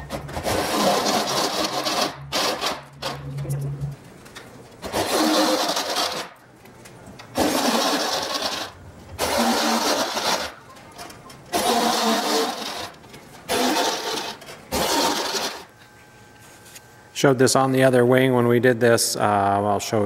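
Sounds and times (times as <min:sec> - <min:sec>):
cordless drill cutting aluminum: 0:00.4 - 0:03.2, 0:04.8 - 0:06.4, 0:07.4 - 0:10.6, 0:11.5 - 0:15.7.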